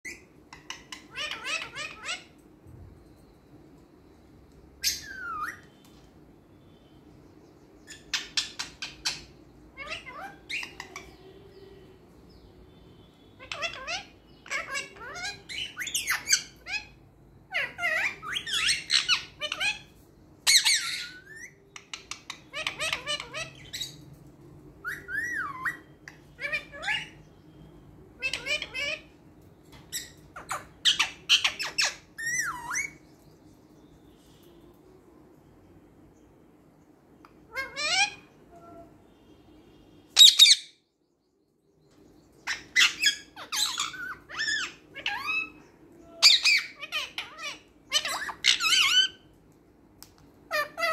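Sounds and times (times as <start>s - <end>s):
parakeet squawking and whistling: 0.0s - 2.4s, 4.8s - 5.9s, 7.8s - 12.0s, 13.0s - 24.0s, 24.8s - 33.0s, 37.3s - 40.9s, 42.4s - 49.4s, 50.5s - 50.9s.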